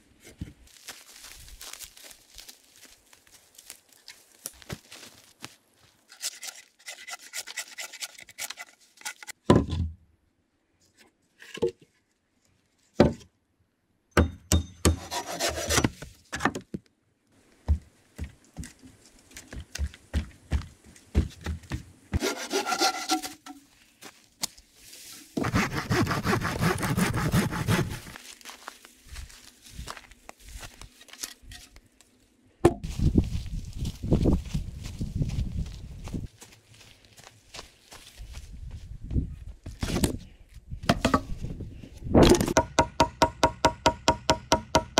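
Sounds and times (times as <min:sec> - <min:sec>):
hand saw cutting log: 0:06.1 - 0:09.3, 0:14.8 - 0:16.0, 0:22.1 - 0:23.5, 0:25.4 - 0:28.2.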